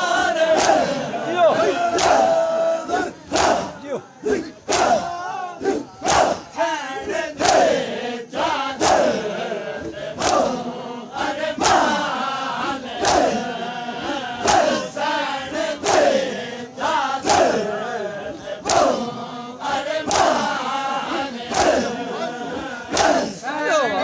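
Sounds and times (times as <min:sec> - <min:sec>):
men chanting in unison: 0:00.0 - 0:24.0
hands slapping chests: 0:00.4 - 0:01.0, 0:01.6 - 0:06.5, 0:07.4 - 0:07.8, 0:09.8 - 0:10.6, 0:11.6 - 0:12.1, 0:12.9 - 0:13.4, 0:17.2 - 0:17.6, 0:18.6 - 0:19.0, 0:20.0 - 0:20.5, 0:21.4 - 0:21.9, 0:22.9 - 0:23.4.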